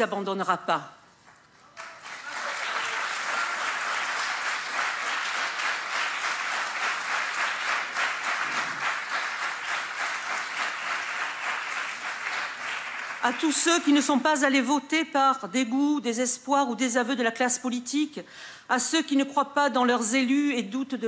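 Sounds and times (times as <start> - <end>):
audience applauding: 1.7 - 13.6.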